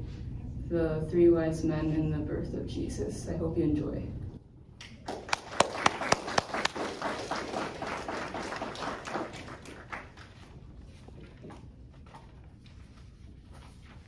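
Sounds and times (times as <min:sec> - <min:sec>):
audience applauding: 0:05.0 - 0:10.6.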